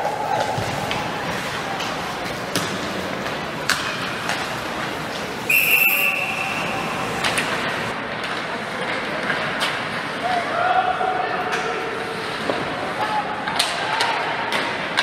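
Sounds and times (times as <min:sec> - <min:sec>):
steady background noise: 0:00.0 - 0:15.0
referee's whistle blast: 0:05.5 - 0:07.0.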